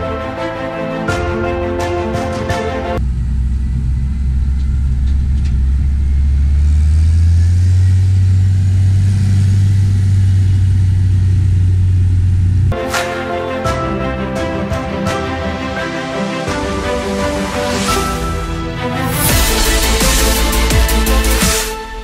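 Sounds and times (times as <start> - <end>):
tractor diesel engine: 2.5 - 22.0.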